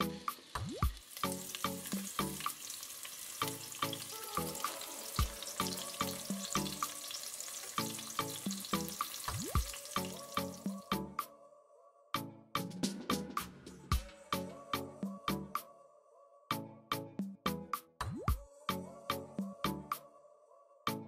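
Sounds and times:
background music with beat: 0.0s - 2.7s, 3.4s - 7.2s, 7.8s - 11.3s, 12.2s - 15.7s, 16.5s - 20.1s
onions sizzling in hot oil: 0.0s - 10.9s.

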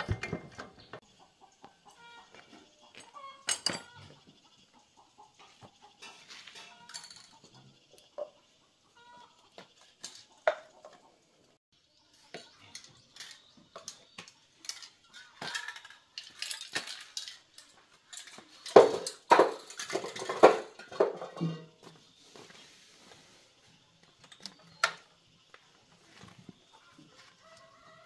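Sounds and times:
spray cans and tools clattering: 0.0s - 1.0s, 3.4s - 4.1s, 5.4s - 8.4s, 9.7s - 11.0s, 12.3s - 23.2s.

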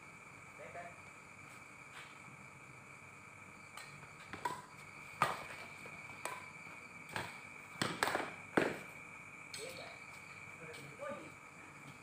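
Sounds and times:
rackets striking shuttlecock: 3.7s - 6.5s, 7.1s - 8.8s.

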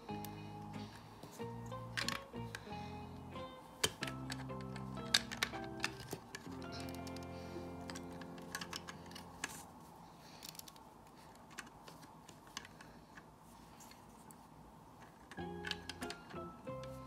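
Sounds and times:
background music: 0.0s - 9.7s, 15.3s - 17.0s
plastic toy bricks clicking: 1.9s - 2.7s, 3.8s - 9.6s, 15.0s - 17.0s.

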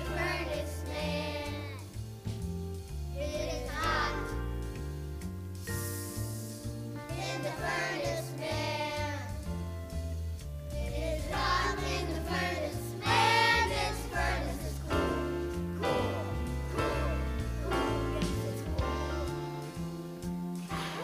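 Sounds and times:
children singing: 0.0s - 1.8s, 3.2s - 4.5s, 7.1s - 9.4s, 10.8s - 20.0s, 20.7s - 21.0s
bass line: 0.0s - 21.0s
instrumental accompaniment: 0.0s - 21.0s.

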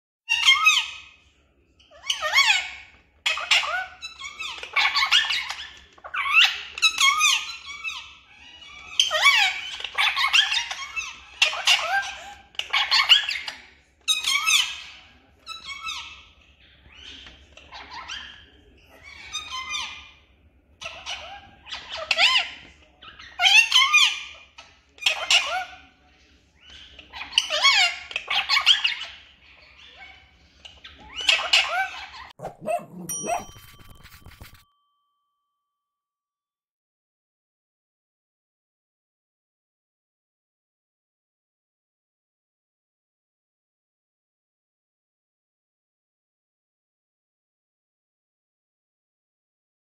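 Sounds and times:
parakeets chattering and squawking: 0.3s - 34.6s.

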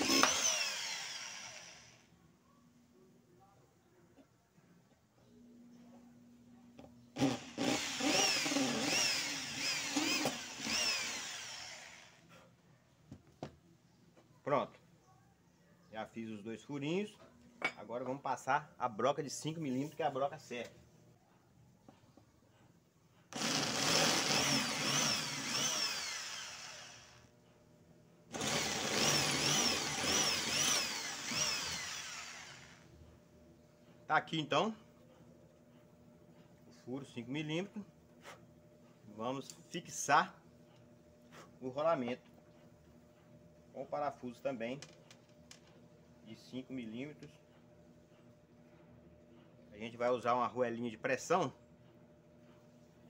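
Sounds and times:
electric drill boring metal: 0.0s - 2.1s, 7.2s - 12.2s, 23.3s - 27.3s, 28.3s - 32.9s.

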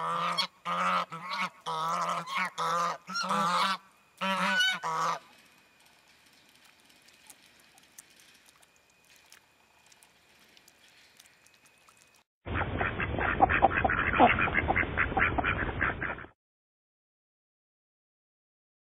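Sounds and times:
chorus of waterfowl calls: 0.0s - 5.3s, 12.8s - 16.3s
small ticks: 5.3s - 12.2s.

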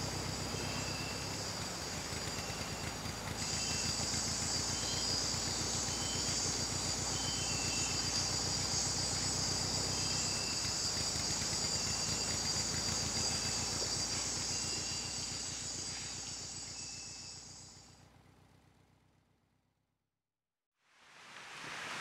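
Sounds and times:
boat motor rumble: 0.0s - 17.3s
insect chirps: 0.0s - 17.9s
insect buzzing: 0.6s - 17.6s.

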